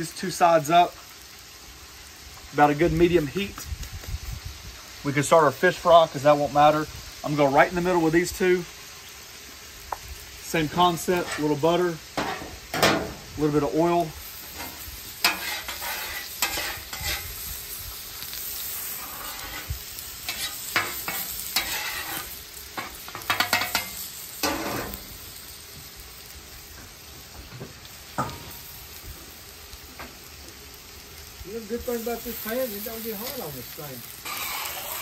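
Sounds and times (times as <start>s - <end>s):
butter and oil sizzling on griddle: 0.0s - 35.0s
fish fillet sizzling in fat: 0.0s - 35.0s
metal spatula scraping steel: 14.6s - 17.3s, 18.8s - 19.7s, 20.3s - 25.0s, 34.2s - 35.0s.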